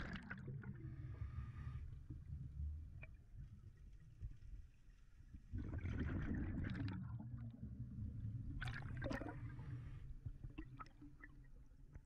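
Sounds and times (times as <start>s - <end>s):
faint low underwater rumble: 0.0s - 12.0s.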